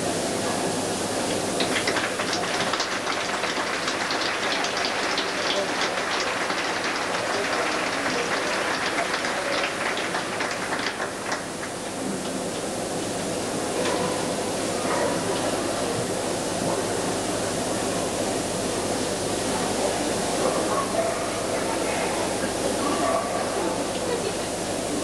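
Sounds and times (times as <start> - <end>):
crowd applauding: 1.6 - 12.2.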